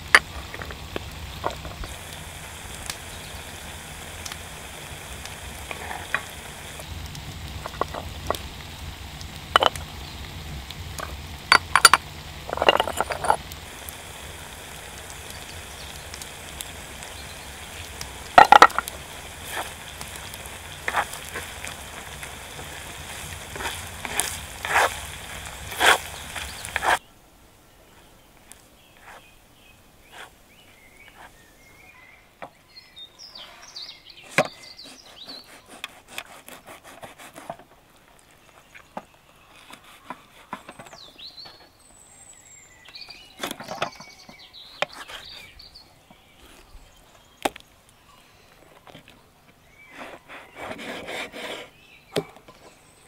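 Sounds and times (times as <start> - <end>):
onions sizzling in fat: 0.0 - 27.0, 34.1 - 36.6.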